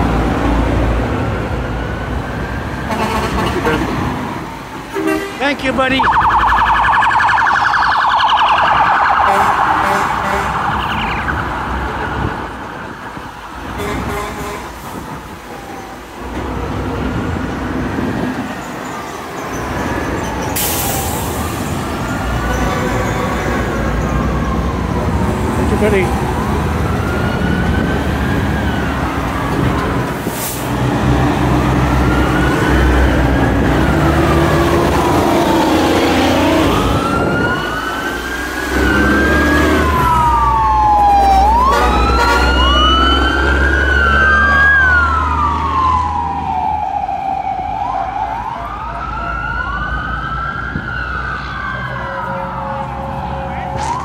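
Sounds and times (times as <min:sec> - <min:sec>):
dump trucks rumbling past: 0:00.0 - 0:54.0
sirens wailing: 0:00.0 - 0:54.0.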